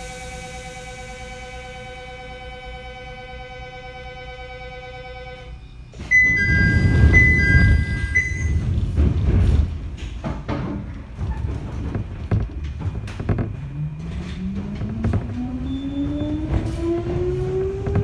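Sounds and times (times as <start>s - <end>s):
train clunks: 5.9s - 18.0s
heavy thump and rumble: 6.0s - 18.0s
traction motor whine: 12.3s - 18.0s.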